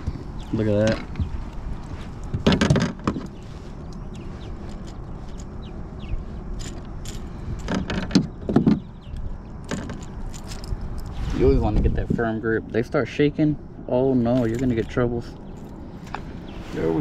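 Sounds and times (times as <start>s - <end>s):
knocks and clicks in a kayak: 2.2s - 3.4s, 7.6s - 10.1s.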